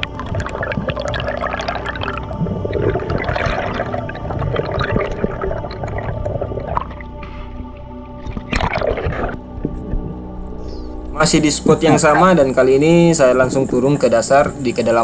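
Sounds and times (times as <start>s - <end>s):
underwater bubbling and gurgling: 0.0s - 10.5s.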